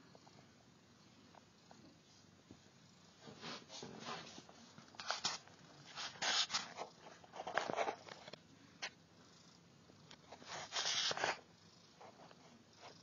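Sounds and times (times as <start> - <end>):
kittens rustling and scuffling: 2.5 - 9.0, 10.1 - 13.0.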